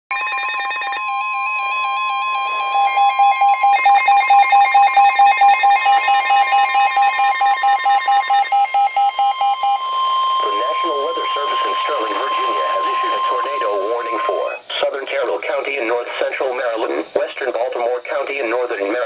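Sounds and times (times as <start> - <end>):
electronic alarm beeps: 0.1 - 14.8
steady warning alert tone: 0.1 - 15.8
stepped warbling tones: 0.8 - 14.6.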